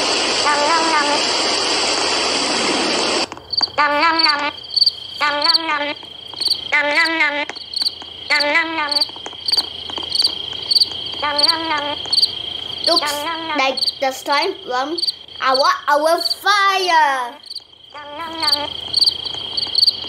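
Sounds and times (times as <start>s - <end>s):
rain hiss: 0.0s - 20.0s
crickets chirping: 0.4s - 2.0s, 2.6s - 20.0s
frog croaking: 3.3s - 16.4s, 17.3s - 20.0s.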